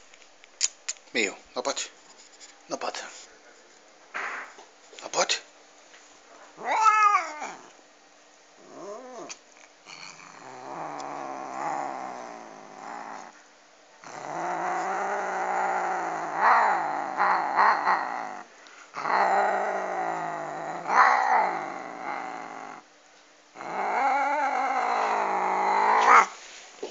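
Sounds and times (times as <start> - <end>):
cat growling: 6.6 - 7.8, 8.6 - 13.4, 14.0 - 22.9, 23.6 - 26.4.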